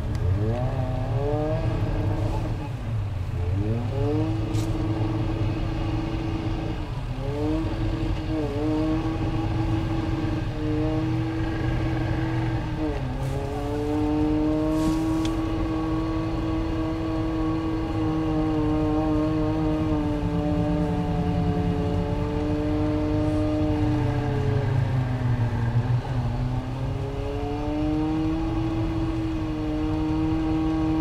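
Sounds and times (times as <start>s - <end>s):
tires spinning: 0.0s - 31.0s
truck engine revving hard: 3.5s - 24.7s.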